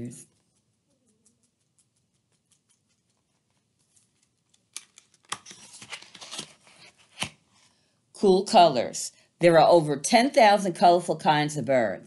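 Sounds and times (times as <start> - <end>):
book pages turning: 3.5 - 7.7.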